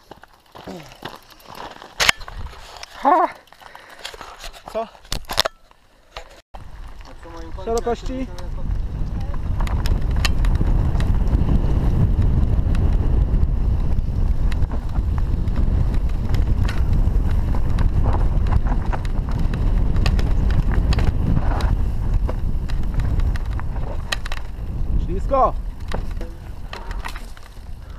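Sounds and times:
bike tyres rumbling on dirt: 0.0 - 4.9, 6.6 - 27.9
bike clicks and rattles: 0.0 - 27.9
wind buffeting microphone: 6.6 - 27.9.

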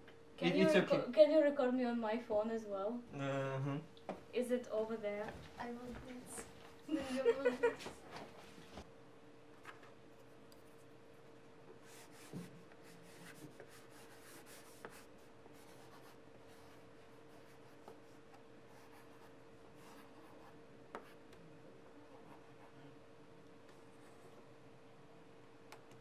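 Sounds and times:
faint steady hum: 0.0 - 26.0
stylus scratching on tablet: 11.8 - 21.2.

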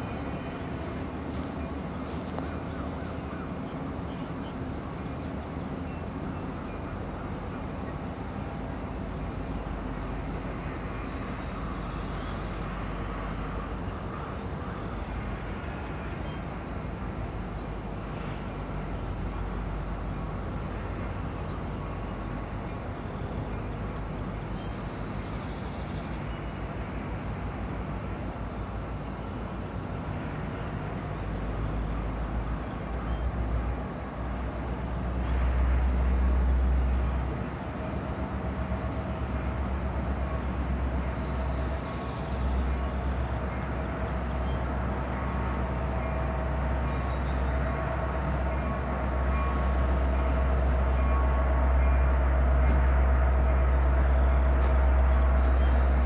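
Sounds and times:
diesel locomotive passing: 0.0 - 56.0
freight cars rumbling on rails: 0.0 - 56.0.

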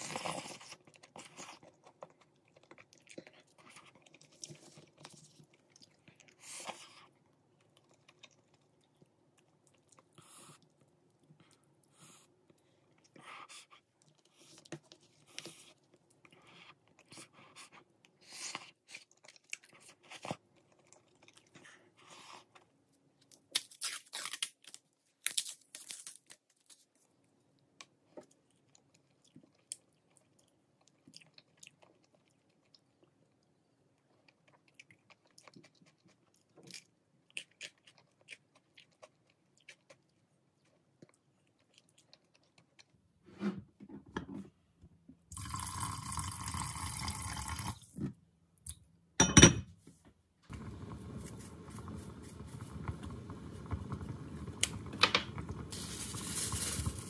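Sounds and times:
chewing: 0.0 - 22.6, 27.8 - 43.0.

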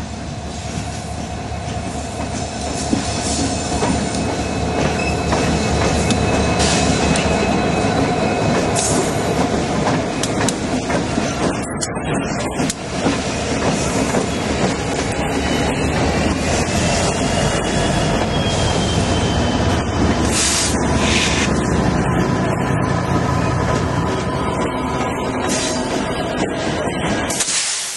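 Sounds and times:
diesel locomotive engines running: 0.0 - 27.9
wheels clattering on rails: 1.7 - 16.8.

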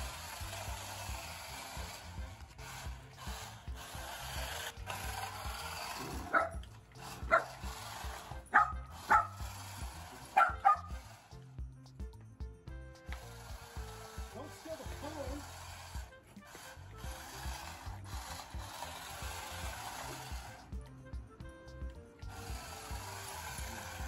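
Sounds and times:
dog barking: 6.2 - 6.6, 7.3 - 7.6, 8.5 - 9.4, 10.4 - 10.9.

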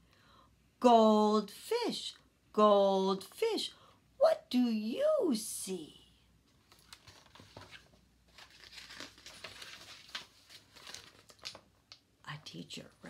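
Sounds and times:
paper pages rustling: 6.5 - 12.1.

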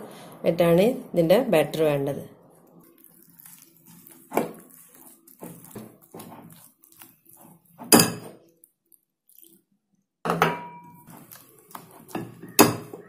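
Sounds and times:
spatula scraping batter: 2.6 - 8.6, 11.0 - 13.0.

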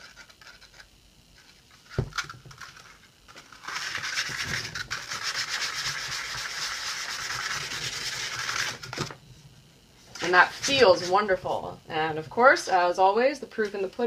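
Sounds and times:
hand sanding with sandpaper: 3.6 - 8.9, 10.1 - 11.4.

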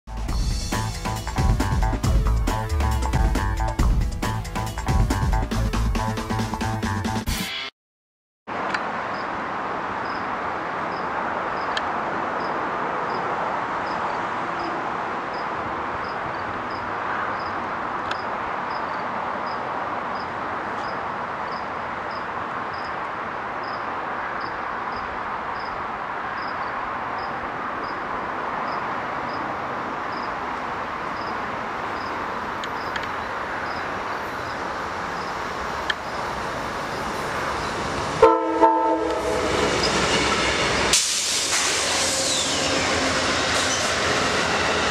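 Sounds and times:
passenger train rumbling: 8.6 - 44.9
locomotive horn blast: 38.2 - 40.0.

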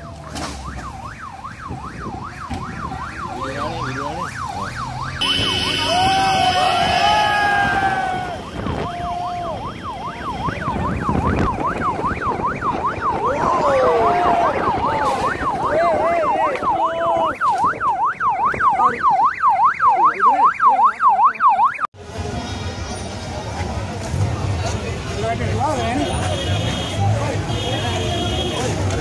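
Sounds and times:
electronic yelp siren: 0.6 - 21.9.

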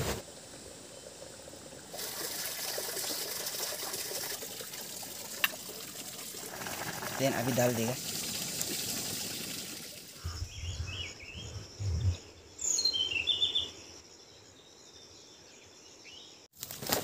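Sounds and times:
pulsing insect trill: 10.0 - 12.8
low rumbles: 10.2 - 12.4
bird calls chirping: 10.2 - 13.9.

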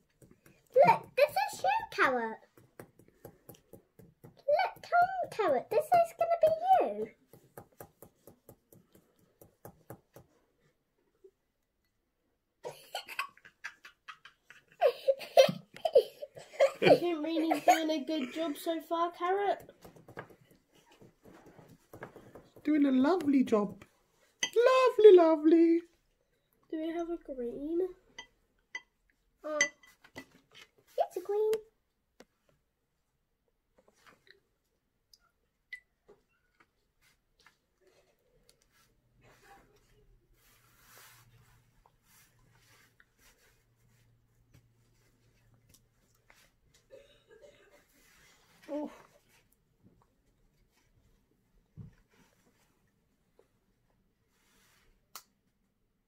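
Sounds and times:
faint clicks and taps: 0.0 - 10.8, 19.2 - 24.7, 31.5 - 32.7, 44.4 - 46.9
girls giggling and laughing: 12.6 - 18.5.

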